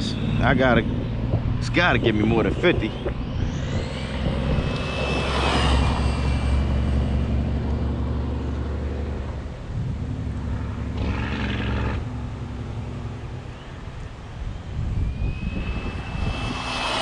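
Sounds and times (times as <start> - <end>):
electric motor whining: 0.0 - 9.3, 13.1 - 17.0
steady low rumble: 0.0 - 11.0, 11.9 - 17.0.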